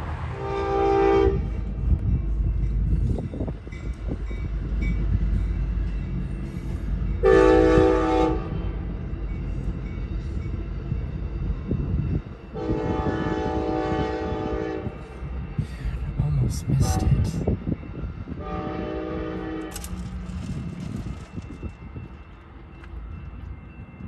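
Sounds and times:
passing train rumble: 0:00.0 - 0:24.0
locomotive horn blasts: 0:00.3 - 0:01.6, 0:07.2 - 0:08.8, 0:12.5 - 0:15.0, 0:18.4 - 0:19.8.

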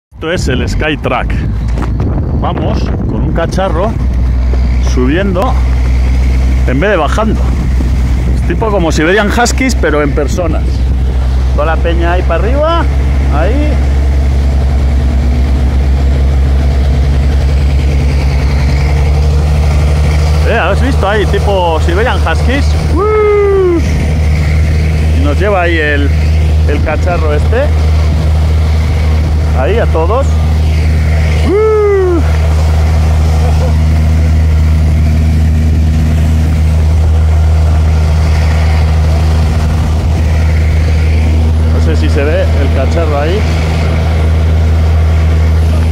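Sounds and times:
engine droning: 0:00.1 - 0:45.9.

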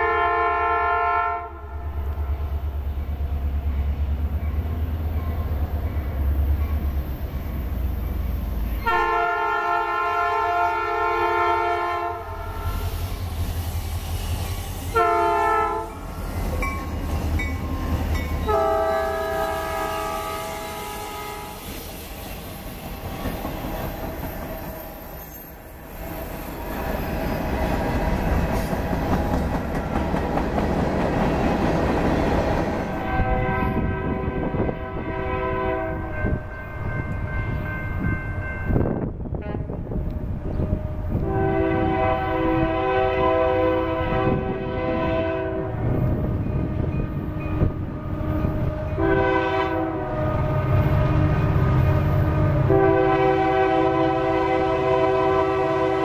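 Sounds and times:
train horn blasts: 0:00.0 - 0:02.3, 0:08.8 - 0:12.9, 0:14.9 - 0:16.1, 0:18.4 - 0:21.8, 0:32.9 - 0:56.0
train rumble: 0:00.0 - 0:56.0.

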